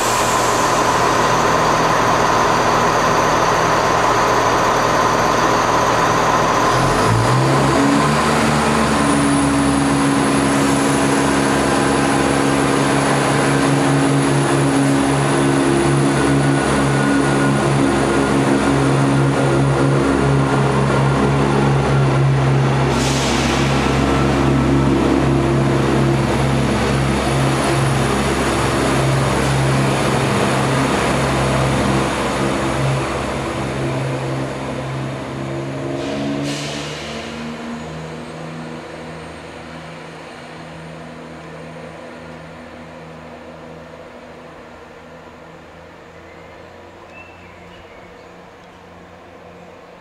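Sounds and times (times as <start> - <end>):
diesel train engine drone: 0.0 - 50.0
short hisses: 22.9 - 23.8.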